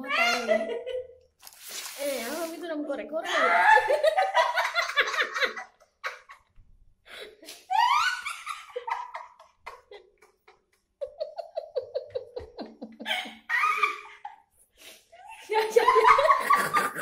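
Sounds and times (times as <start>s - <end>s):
person laughing: 8.8s - 14.1s, 15.5s - 17.0s.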